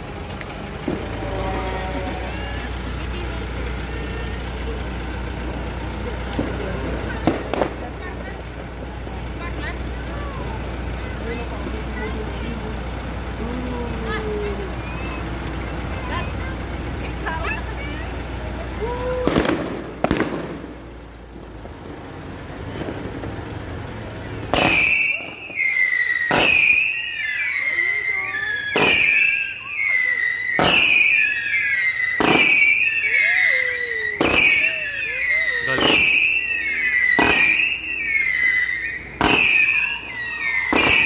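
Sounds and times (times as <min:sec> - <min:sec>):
firework bangs: 0:00.8 - 0:05.4, 0:06.1 - 0:09.8, 0:19.1 - 0:21.0, 0:22.7 - 0:23.4, 0:24.4 - 0:41.0
high wavering whistle: 0:24.7 - 0:41.0.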